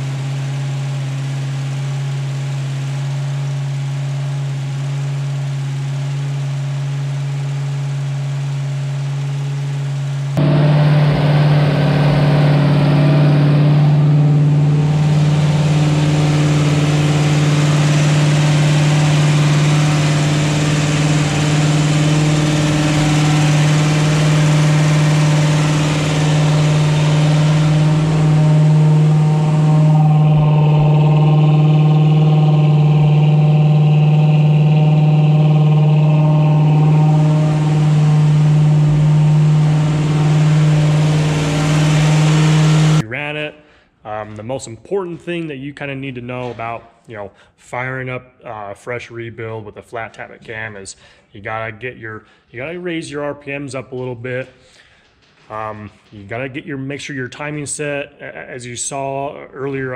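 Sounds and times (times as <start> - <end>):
engine running at raised speed: 0.0 - 43.0.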